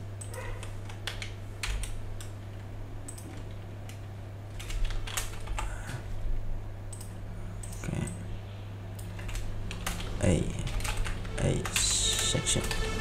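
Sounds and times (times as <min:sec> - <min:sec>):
computer keyboard typing: 0:00.2 - 0:05.8, 0:09.0 - 0:13.0.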